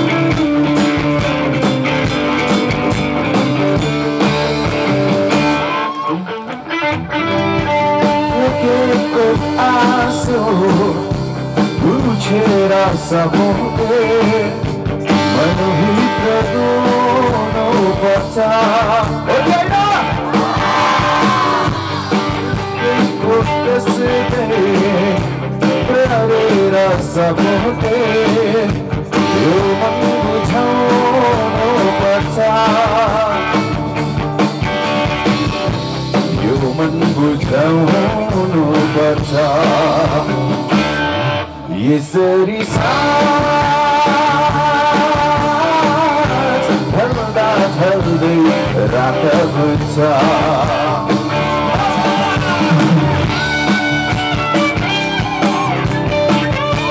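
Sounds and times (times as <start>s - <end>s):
drums: 0.0s - 56.9s
electric guitar: 0.0s - 56.9s
person singing: 5.7s - 33.8s, 36.3s - 40.6s, 41.6s - 53.5s.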